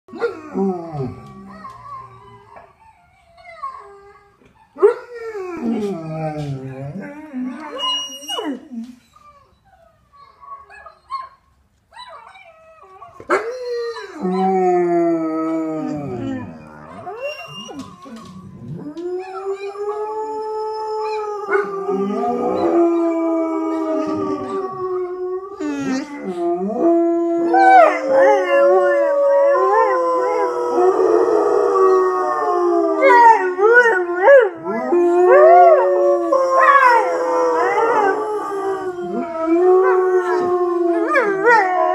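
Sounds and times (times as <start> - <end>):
dogs howling: 0.1 - 2.8, 12.8 - 41.9.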